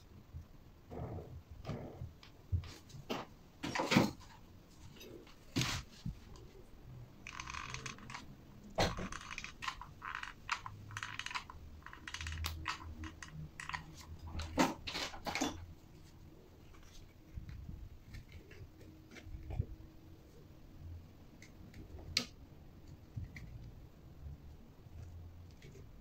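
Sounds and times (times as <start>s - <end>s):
scratching: 3.8s - 19.8s
clicks and knocks of small parts: 7.2s - 15.7s.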